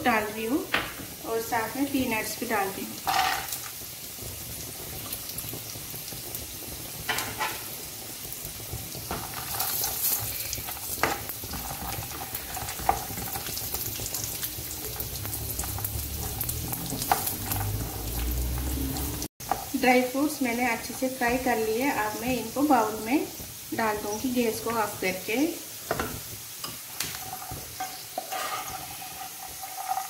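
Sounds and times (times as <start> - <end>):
nuts sizzling in oil: 0.0 - 30.0
spatula scraping pan: 3.0 - 3.6, 9.0 - 15.1, 25.8 - 30.0.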